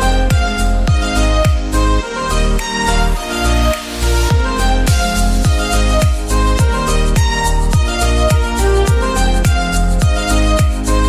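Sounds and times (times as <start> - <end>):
kick drum: 0.0 - 1.8, 4.3 - 10.9
electronic music with deep bass: 0.0 - 11.0.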